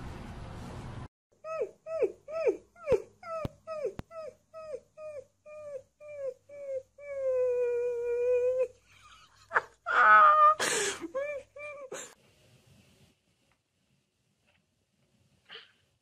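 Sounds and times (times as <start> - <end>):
puppy yipping and howling: 1.5 - 8.7.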